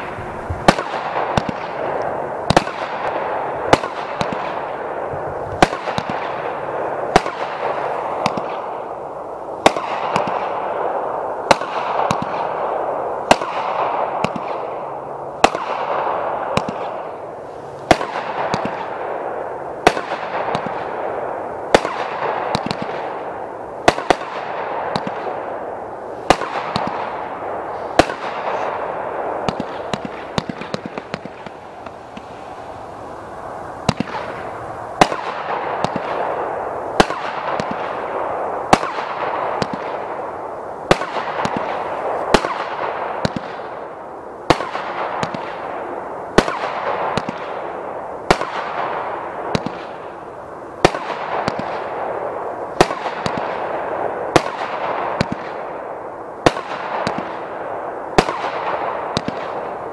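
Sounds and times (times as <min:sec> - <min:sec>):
firework bangs: 0:00.0 - 0:59.9
firework hiss: 0:25.9 - 0:37.9.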